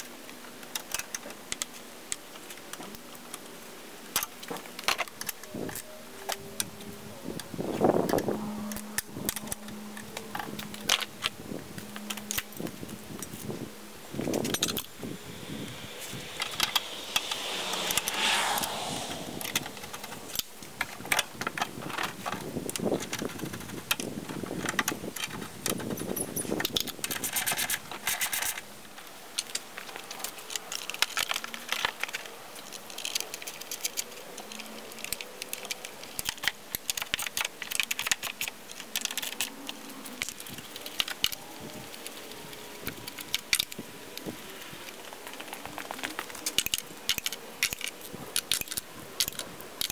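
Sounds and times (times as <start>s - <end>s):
falling whine: 5.3s - 21.4s.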